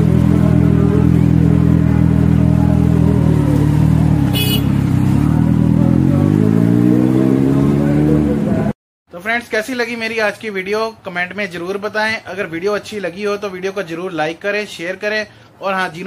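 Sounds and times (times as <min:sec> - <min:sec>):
motorcycle engine revving: 0:00.0 - 0:08.8.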